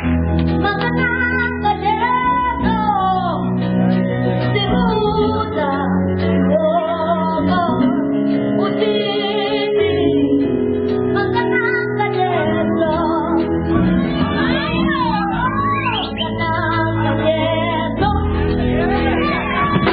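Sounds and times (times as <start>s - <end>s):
electric guitar: 0.0s - 19.9s
electronic keyboard: 0.0s - 19.9s
child singing into a microphone: 0.6s - 3.5s, 4.6s - 13.5s.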